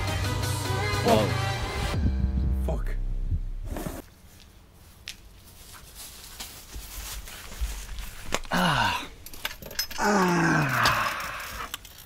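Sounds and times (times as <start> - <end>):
footsteps on grass: 3.7 - 8.4
quiet rustling: 3.7 - 8.5.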